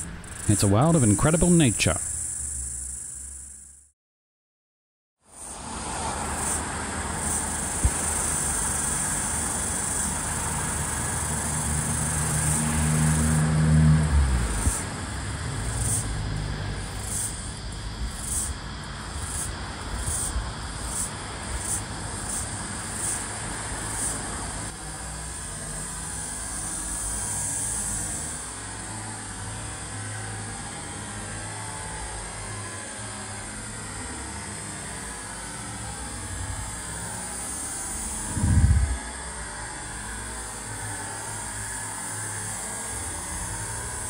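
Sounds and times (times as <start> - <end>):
cicada buzzing: 0.0 - 3.9, 5.3 - 44.0
passing motor vehicle: 5.4 - 17.6, 35.6 - 39.8.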